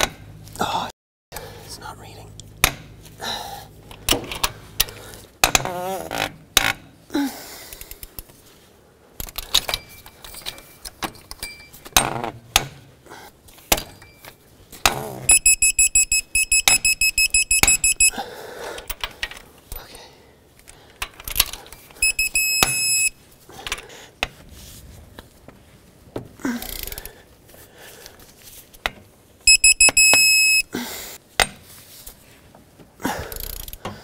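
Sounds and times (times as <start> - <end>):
rapid wrench beeps: 15.3 - 18.2, 22.0 - 23.2, 29.5 - 30.7
wrench ratcheting and clicking: 26.6 - 27.2, 33.3 - 34.0.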